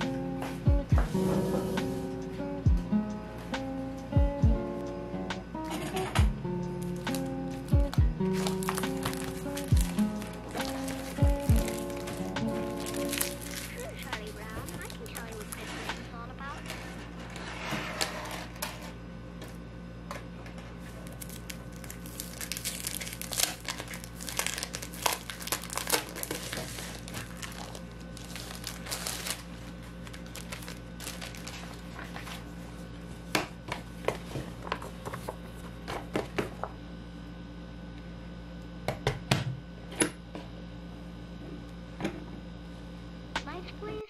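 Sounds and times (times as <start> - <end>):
steady low hum: 0.0 - 44.0
crinkling and crackling: 6.8 - 19.0, 20.4 - 32.5.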